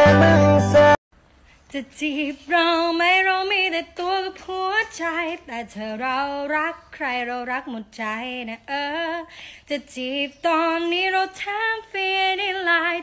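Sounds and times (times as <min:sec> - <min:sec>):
music with steady bass line: 0:00.0 - 0:01.0
woman singing unaccompanied: 0:01.7 - 0:13.0.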